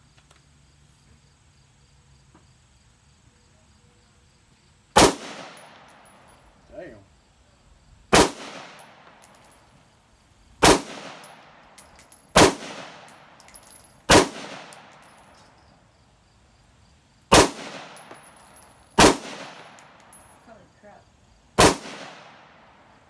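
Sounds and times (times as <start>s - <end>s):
rifle shots echoing: 5.0s - 6.3s, 8.1s - 9.6s, 10.6s - 15.3s, 17.3s - 20.2s, 21.6s - 22.8s
brass casings clinking on concrete: 5.5s - 6.7s, 8.8s - 10.0s, 11.2s - 16.0s, 17.9s - 20.7s.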